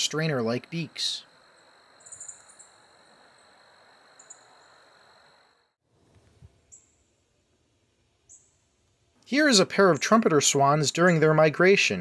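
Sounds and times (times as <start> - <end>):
high insect tone: 0.0 - 5.8
soft hiss: 0.0 - 9.6
high bird chirps: 1.6 - 3.5, 4.2 - 4.8.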